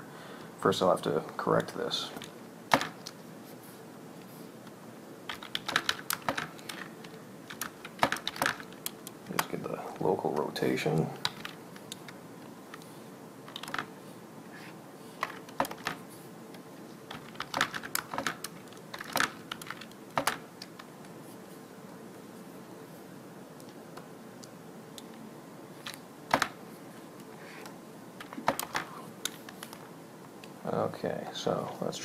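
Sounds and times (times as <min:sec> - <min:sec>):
computer keyboard typing: 0:05.3 - 0:09.6, 0:11.2 - 0:12.8, 0:13.5 - 0:13.9, 0:15.2 - 0:16.0, 0:17.1 - 0:20.9.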